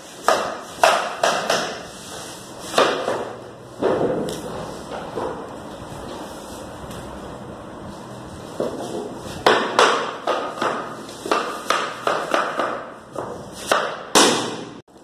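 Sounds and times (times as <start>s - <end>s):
wooden block knocking floor planks: 2.7s - 5.5s, 8.6s - 14.8s.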